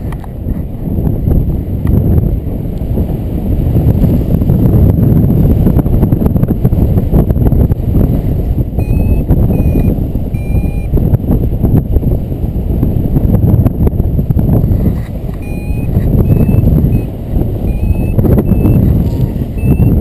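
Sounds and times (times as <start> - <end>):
wind rushing over microphone: 0.0 - 20.0
short electronic beeps: 8.8 - 10.9, 15.4 - 20.0.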